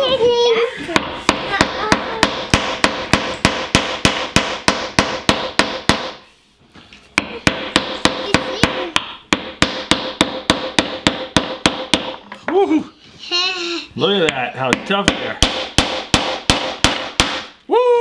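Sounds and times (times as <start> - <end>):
hammer striking walnut: 1.0 - 6.2, 7.2 - 12.3, 14.2 - 17.6.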